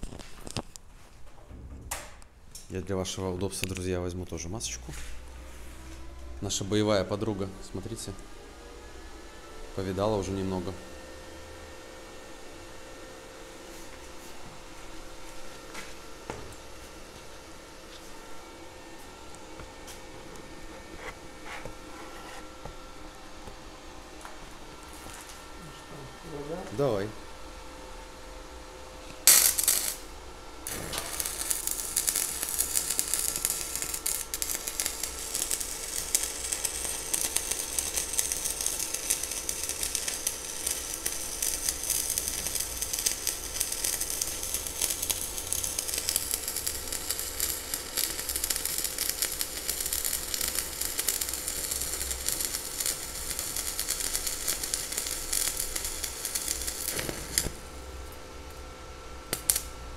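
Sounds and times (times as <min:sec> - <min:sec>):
welding arc crackling: 0:29.1 - 0:58.6, 0:59.3 - 0:59.9.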